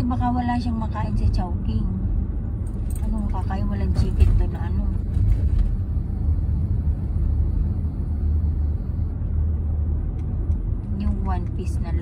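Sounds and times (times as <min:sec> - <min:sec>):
car engine and tyre road noise: 0:00.0 - 0:12.0.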